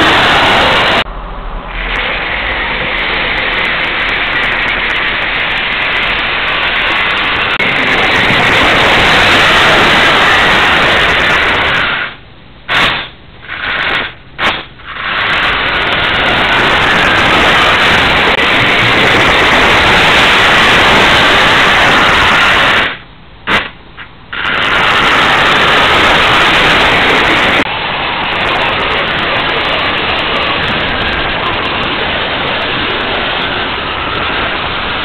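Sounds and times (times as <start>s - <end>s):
model train motor whirring: 1.7s - 23.6s, 24.3s - 27.6s.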